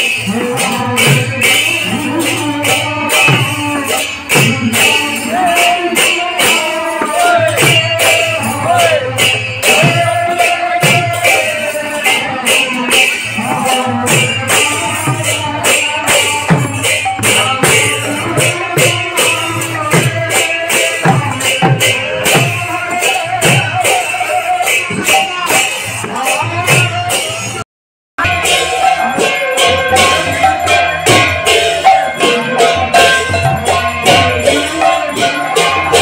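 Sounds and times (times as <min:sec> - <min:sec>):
jingling metal percussion: 0:00.0 - 0:27.6, 0:28.2 - 0:36.0
voices singing: 0:00.0 - 0:27.6, 0:28.2 - 0:36.0.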